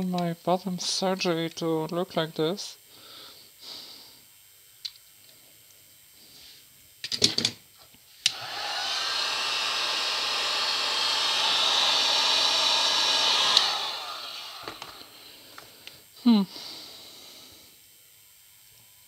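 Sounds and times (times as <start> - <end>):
heat gun fan running: 8.1 - 17.9
heat gun switch click: 12.4 - 15.1.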